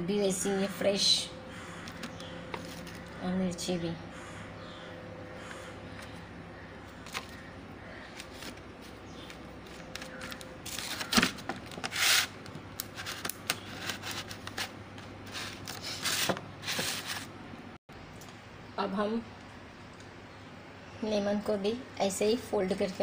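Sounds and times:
tissue paper rustling: 0:15.3 - 0:17.3.

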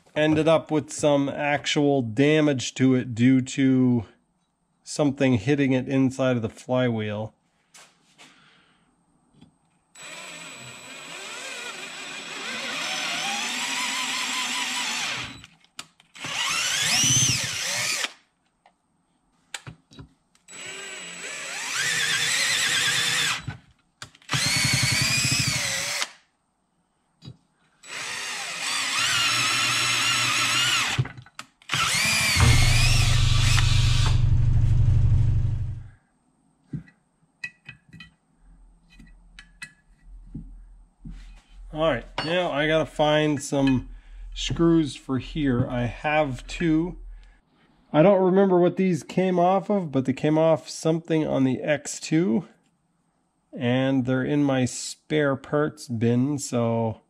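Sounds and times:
cordless drill drilling into metal: 0:10.0 - 0:15.5, 0:16.2 - 0:18.2, 0:20.5 - 0:23.6, 0:24.2 - 0:26.2, 0:27.8 - 0:35.8.

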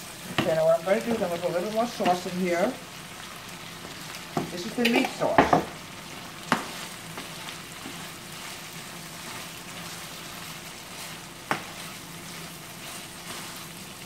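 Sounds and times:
meat sauce sizzling in a pan: 0:00.0 - 0:14.0
spatula stirring and scraping: 0:03.7 - 0:14.0
spatula knocking on pan: 0:05.3 - 0:05.8, 0:06.5 - 0:06.7, 0:11.4 - 0:11.7.

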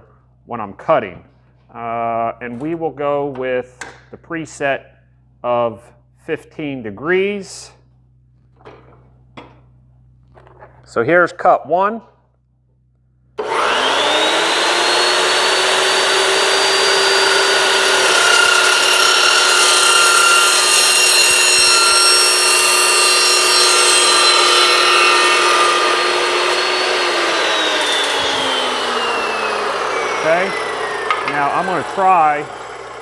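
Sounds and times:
chop saw motor whine: 0:13.4 - 0:33.0
saw blade cutting metal pipe: 0:13.4 - 0:33.0.

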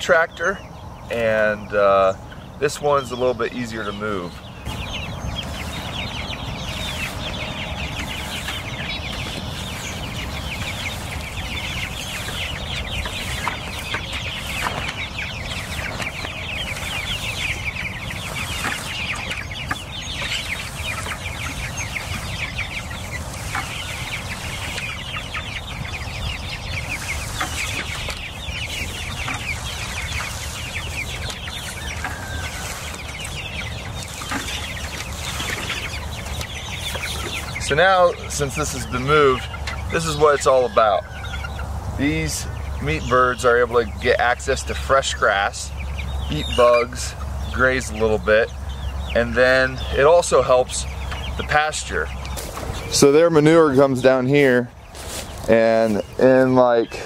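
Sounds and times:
chickens peeping and clucking: 0:00.0 - 0:57.0.

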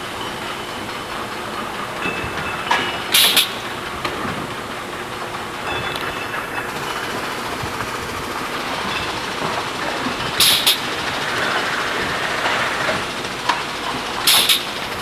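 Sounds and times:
steady machine noise: 0:00.0 - 0:15.0
sharp machine click: 0:03.1 - 0:03.6, 0:10.4 - 0:10.9, 0:14.3 - 0:14.8.

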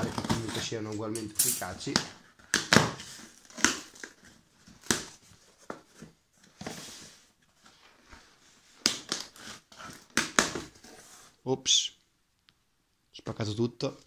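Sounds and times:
cardboard ripping and scraping: 0:00.0 - 0:00.9, 0:09.0 - 0:11.3.

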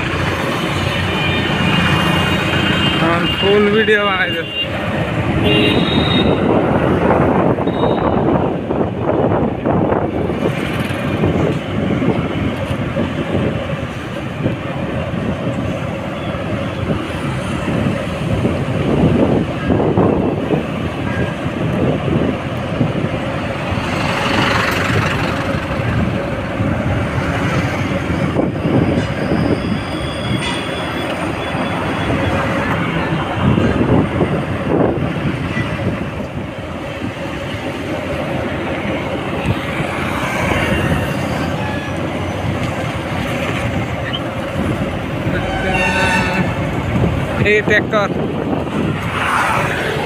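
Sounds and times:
road noise: 0:00.0 - 0:50.0
wind buffeting microphone: 0:04.7 - 0:50.0.

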